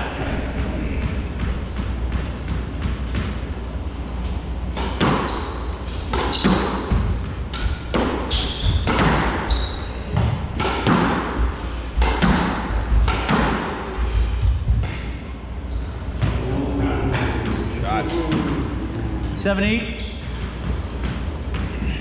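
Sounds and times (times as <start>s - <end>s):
shoe squeaks on wooden floor: 0.8s - 1.4s, 5.2s - 6.9s, 8.3s - 10.7s, 19.9s - 20.8s
squash ball cracking: 10.1s - 11.4s.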